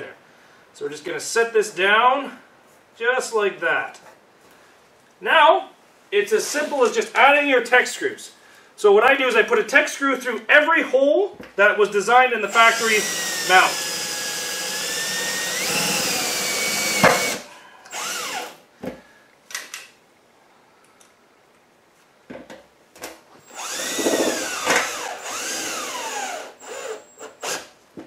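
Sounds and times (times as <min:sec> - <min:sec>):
cordless drill driving screws: 0:12.5 - 0:18.6, 0:23.4 - 0:27.7.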